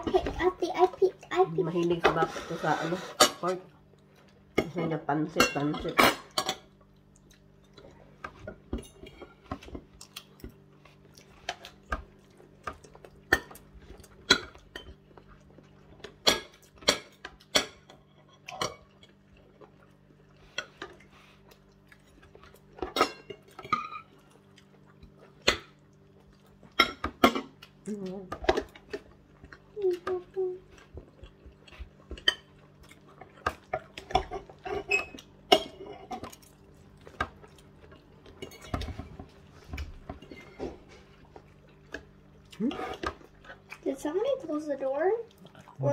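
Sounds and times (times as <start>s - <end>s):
fork scraping on plate: 2.2s - 3.4s.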